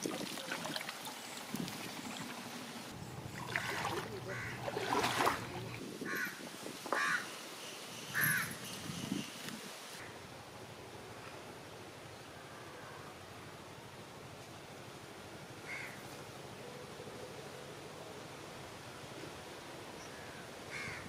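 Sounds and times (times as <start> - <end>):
bird calling: 3.0 - 5.4
background hiss and rustle: 5.2 - 21.0.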